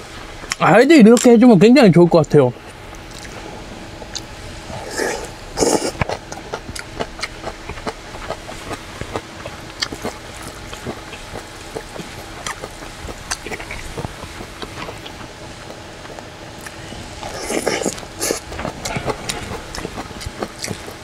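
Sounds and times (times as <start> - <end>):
chewing and wet mouth sounds: 2.9 - 3.4, 4.0 - 21.0
slurping noodles: 4.6 - 6.2, 16.6 - 21.0.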